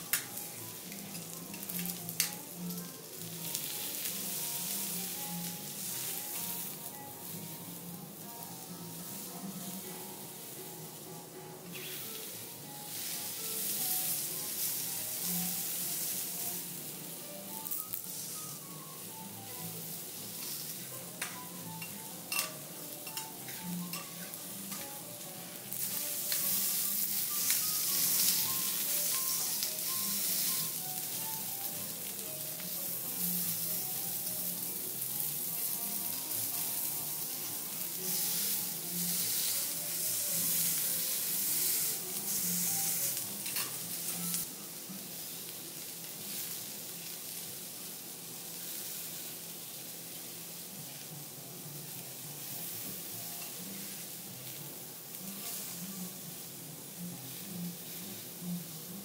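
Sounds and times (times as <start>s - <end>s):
vegetables sizzling on a griddle: 0.0s - 59.0s
knife and spatula tapping metal: 21.2s - 24.9s.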